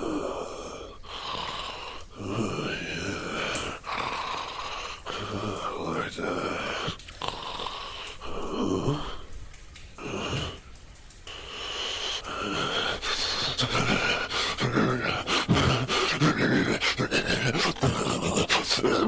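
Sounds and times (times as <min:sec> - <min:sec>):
man wheezing breathing: 0:00.0 - 0:09.3, 0:11.3 - 0:19.0
man groaning and grunting: 0:12.2 - 0:19.0.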